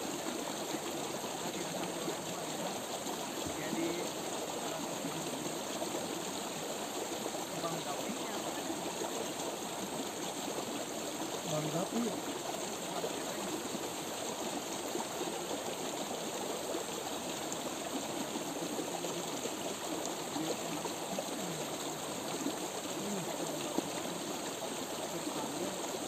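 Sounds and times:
stream running: 0.0s - 26.0s.

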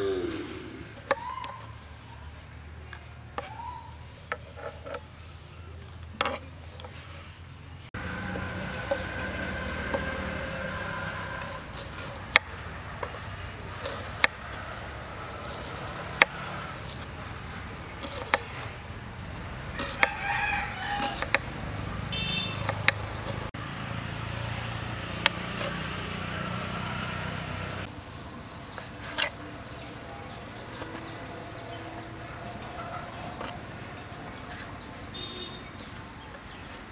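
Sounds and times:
knife slicing onion: 18.0s - 19.0s, 19.7s - 20.2s, 20.8s - 21.5s, 22.1s - 23.5s.

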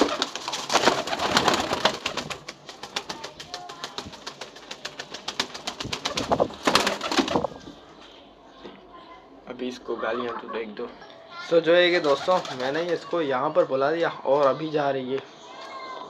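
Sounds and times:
pigeon wings flapping: 0.0s - 7.6s, 12.0s - 13.0s.

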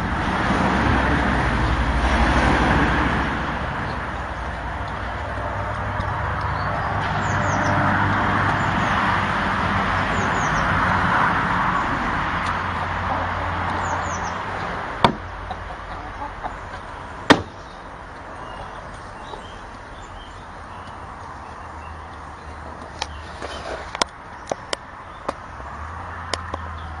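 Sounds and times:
sharp wooden knocks: 15.0s - 15.6s, 17.3s - 17.6s.

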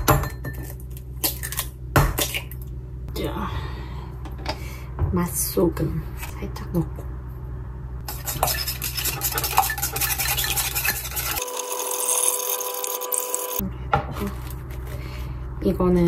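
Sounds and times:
eggs being beaten in a bowl: 8.1s - 11.4s.

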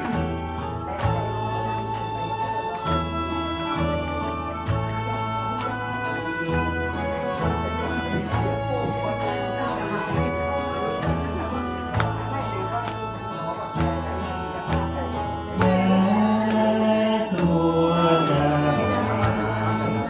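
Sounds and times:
karaoke backing track: 0.0s - 20.0s
man singing into a microphone: 14.3s - 20.0s.

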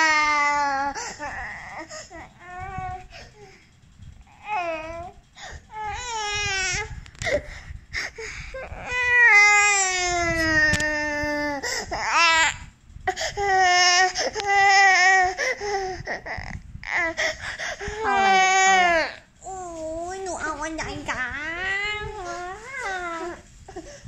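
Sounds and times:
toddler crying: 18.0s - 19.9s, 21.5s - 23.4s.

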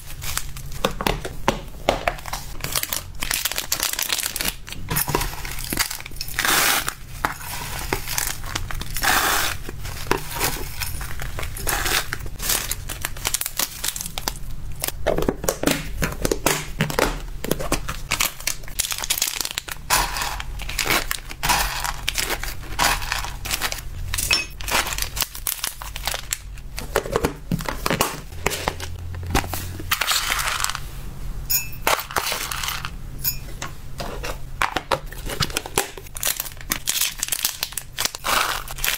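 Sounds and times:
plastic packaging crinkling: 0.0s - 30.8s, 35.0s - 38.9s
dry pellets rattling into cups: 18.2s - 26.5s, 29.9s - 30.8s, 31.8s - 33.0s, 36.1s - 38.9s.

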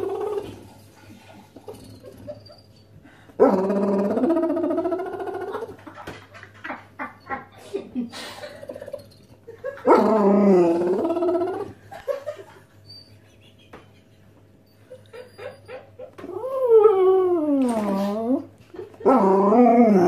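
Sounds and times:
dog howling moans: 0.0s - 0.7s, 3.4s - 5.8s, 9.9s - 11.8s, 16.2s - 20.0s.

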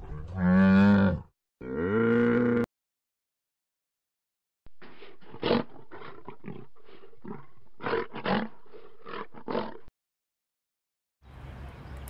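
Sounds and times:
lion roaring: 0.0s - 2.7s, 5.2s - 9.9s.

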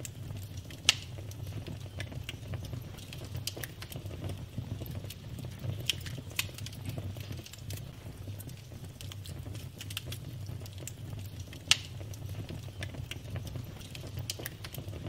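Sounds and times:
fire low rumble: 0.0s - 15.0s
wood fire crackling: 0.0s - 15.0s.

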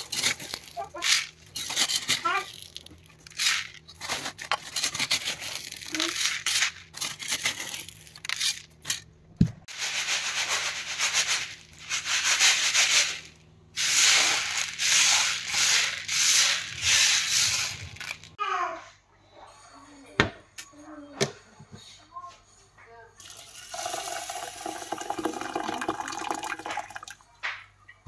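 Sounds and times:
beans rattling on a bamboo tray: 0.0s - 9.0s, 9.8s - 18.4s.

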